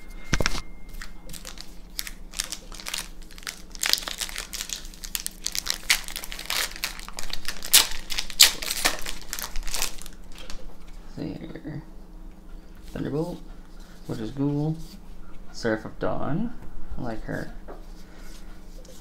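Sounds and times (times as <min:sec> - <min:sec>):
foil wrapper crinkling: 0:00.9 - 0:10.6.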